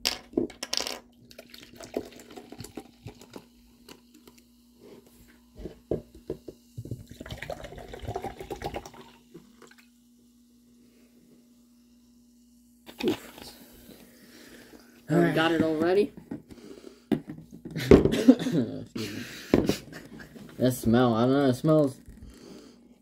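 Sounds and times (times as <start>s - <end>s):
liquid pouring: 1.2s - 4.4s, 6.9s - 9.9s.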